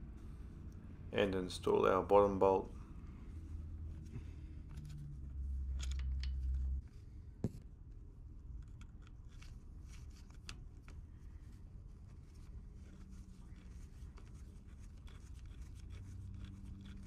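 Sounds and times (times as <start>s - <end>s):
low hum: 0.0s - 10.1s
metallic clicks and scrapes: 4.6s - 6.8s, 8.5s - 11.0s, 12.3s - 17.0s.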